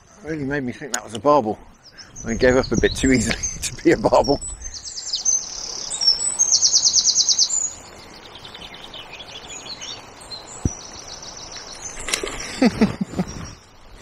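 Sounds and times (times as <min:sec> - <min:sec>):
songbird trilling: 0:01.8 - 0:14.0.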